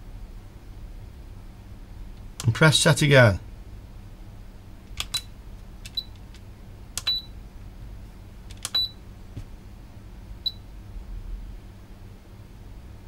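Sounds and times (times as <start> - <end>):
buttons clicking: 7.0 - 7.3, 8.5 - 8.9.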